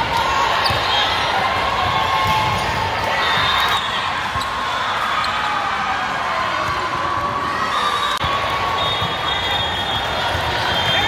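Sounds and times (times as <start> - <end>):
volleyball hits: 0.0 - 4.7
players and spectators voices: 0.0 - 11.0.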